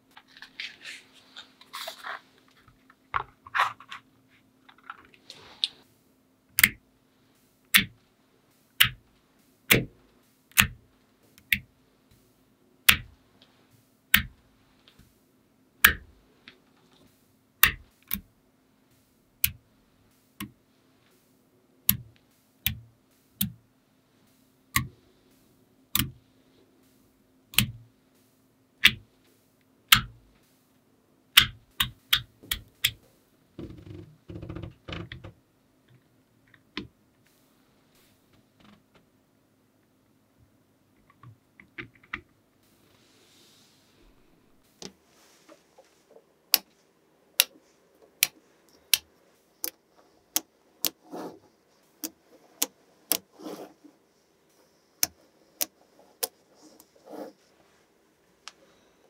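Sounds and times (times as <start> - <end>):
faint steady hum: 0.0 - 59.0
magnetic balls snapping together: 6.5 - 6.8, 7.7 - 8.0, 8.7 - 11.7, 12.8 - 13.2, 14.1 - 15.1, 15.8 - 18.3, 18.9 - 19.7, 21.9 - 23.6, 24.7 - 25.0, 25.9 - 26.2, 27.5 - 27.9, 28.8 - 29.2, 29.9 - 30.5, 31.3 - 35.3, 46.5 - 46.8, 47.4 - 53.7, 55.0 - 57.0.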